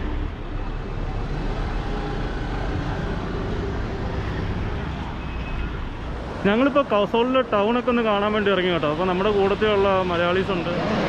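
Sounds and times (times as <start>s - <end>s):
cars driving past: 0.0s - 11.0s
road noise rumble: 0.0s - 11.0s.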